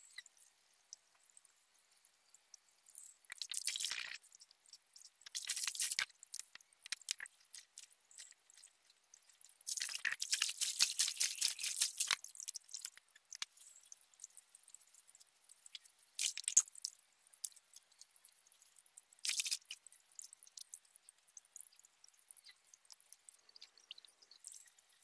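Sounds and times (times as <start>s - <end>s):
water dripping: 2.3s - 25.0s
water splashing by hand: 9.7s - 12.4s.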